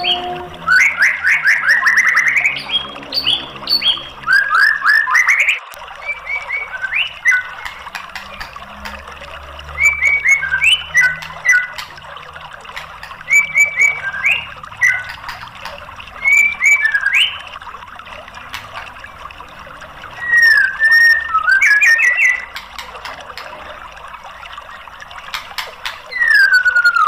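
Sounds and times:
bird whistling song: 0.0s - 7.8s, 9.8s - 11.9s, 13.2s - 15.4s, 16.2s - 17.5s, 20.2s - 22.9s, 26.0s - 27.0s.

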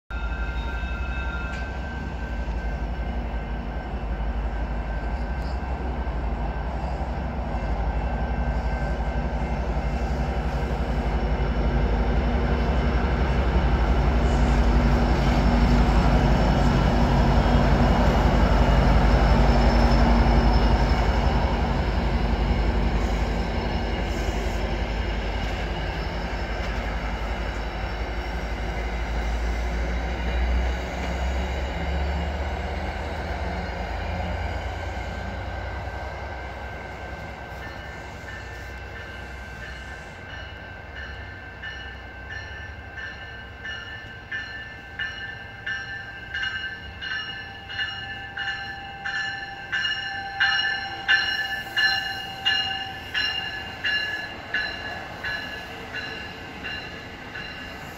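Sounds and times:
diesel train passing: 0.1s - 57.9s
wheels rumbling on rail: 0.1s - 57.9s.

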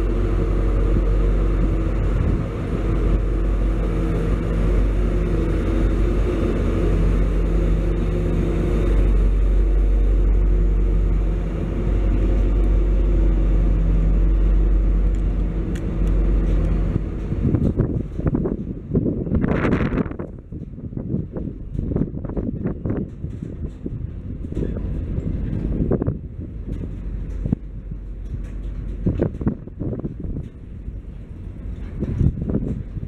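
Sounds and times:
low steady hum: 0.0s - 33.0s
wheels rumbling on rail: 0.0s - 33.0s
wind gusts on microphone: 0.0s - 33.0s.

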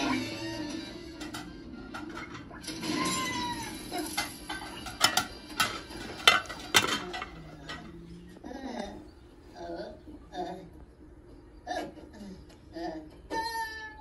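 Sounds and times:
plates and cutlery clinking: 0.0s - 8.4s.

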